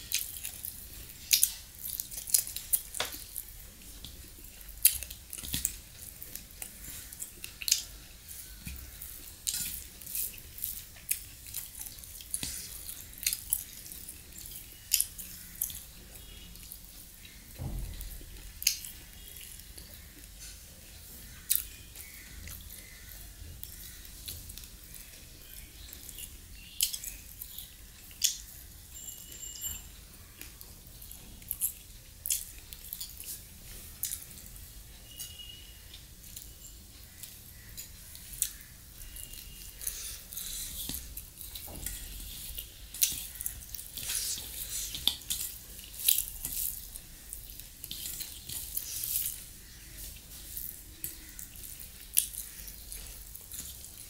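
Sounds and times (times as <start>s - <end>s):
chewing and smacking: 0.0s - 29.4s, 30.2s - 54.0s.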